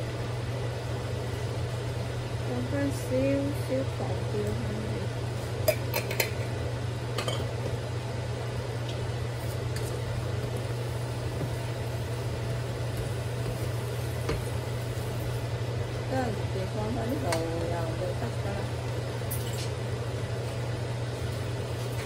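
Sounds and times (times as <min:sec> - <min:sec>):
steady low hum: 0:00.0 - 0:22.0
spatula stirring food in wok: 0:09.2 - 0:15.9.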